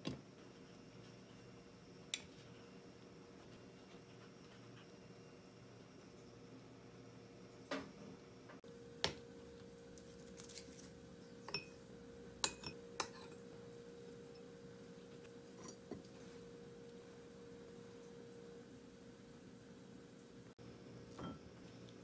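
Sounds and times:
faint hum: 0.0 - 22.0
utensils clinking on ceramic bowls: 11.5 - 11.8, 12.4 - 13.5, 15.6 - 16.0.

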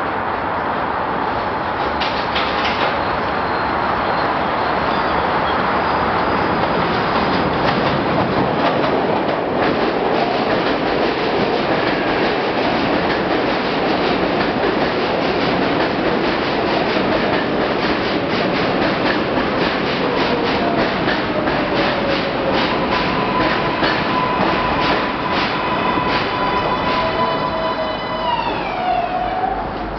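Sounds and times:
train wheels clacking on rails: 1.8 - 3.3, 6.6 - 27.6.

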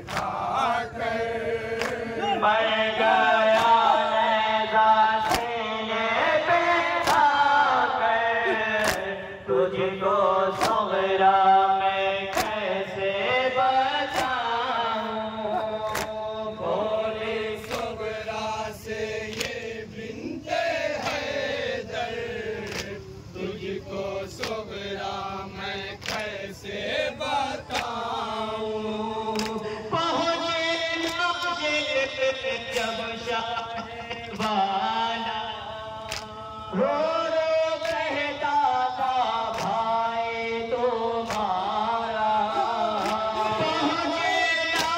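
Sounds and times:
men chanting a lament: 0.0 - 44.9
chest-beating slaps: 1.8 - 2.0, 12.3 - 12.6.

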